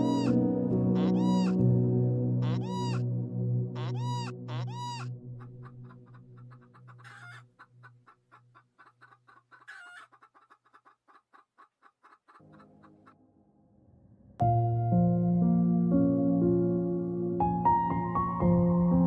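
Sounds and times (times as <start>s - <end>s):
quail clucking: 0.0s - 0.4s, 1.0s - 1.6s, 2.4s - 3.0s, 3.8s - 13.2s.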